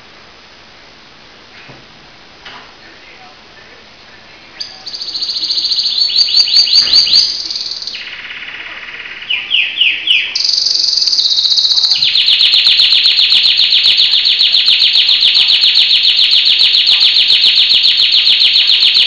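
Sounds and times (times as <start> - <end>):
canary singing trills: 4.6 - 19.0.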